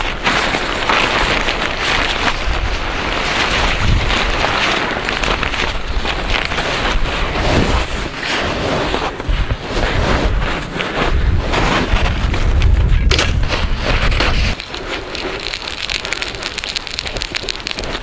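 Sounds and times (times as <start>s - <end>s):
tent fabric flapping and rustling: 0.0s - 15.4s
strong wind buffeting microphone: 0.0s - 18.0s.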